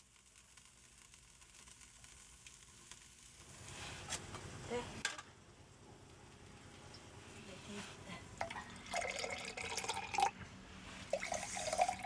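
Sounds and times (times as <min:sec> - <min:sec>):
liquid pouring into cup: 0:08.4 - 0:10.4, 0:11.1 - 0:12.0.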